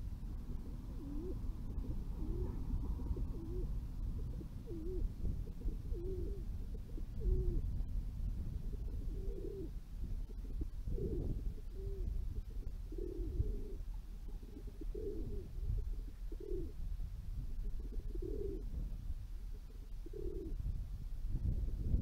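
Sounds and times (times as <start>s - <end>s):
low background rumble: 0.0s - 22.0s
pigeons cooing: 0.6s - 7.7s, 8.6s - 16.8s, 17.6s - 18.8s, 19.5s - 20.6s.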